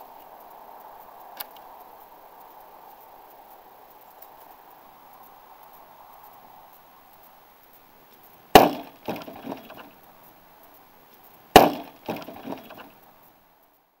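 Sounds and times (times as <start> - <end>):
sword hitting wooden target: 8.6 - 9.8, 11.6 - 12.9
light wooden knocks: 8.6 - 9.9, 11.6 - 13.0.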